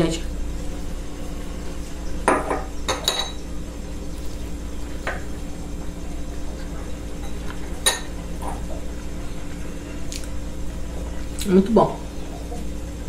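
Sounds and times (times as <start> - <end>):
steady low hum: 0.0 - 13.0
tableware clinking: 2.2 - 3.4, 7.2 - 8.6.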